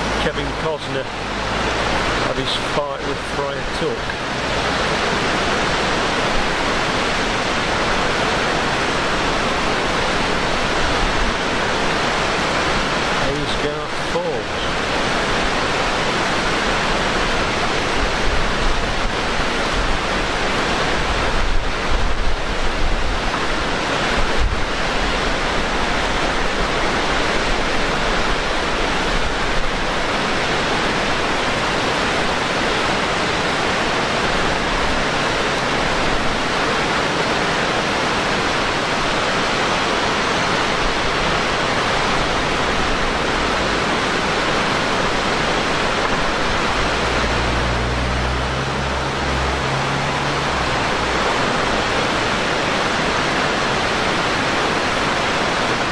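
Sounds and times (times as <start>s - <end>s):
waterfall rushing: 0.0s - 55.9s
wind buffeting microphone: 14.8s - 37.2s.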